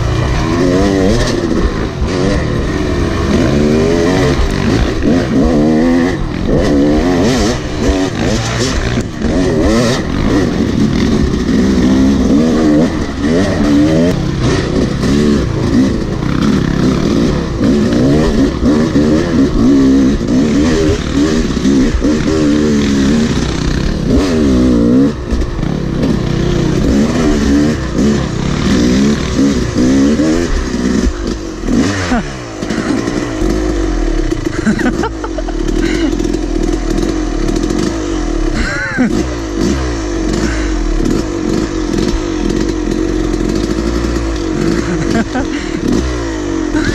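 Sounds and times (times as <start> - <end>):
dirt bike engine revving: 0.0 - 46.9.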